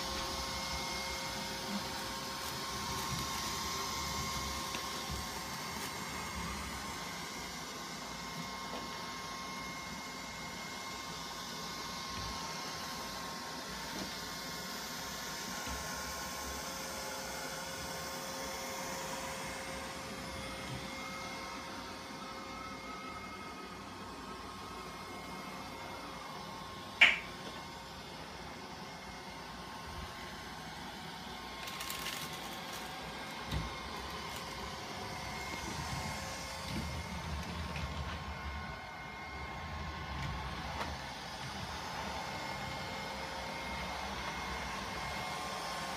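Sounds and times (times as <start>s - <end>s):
robot vacuum whirring: 0.0s - 16.6s, 27.4s - 45.9s.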